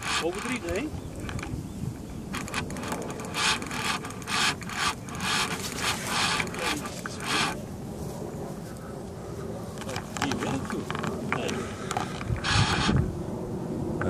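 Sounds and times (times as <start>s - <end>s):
fishing reel ratchet clicking: 0.0s - 1.5s, 2.3s - 7.6s.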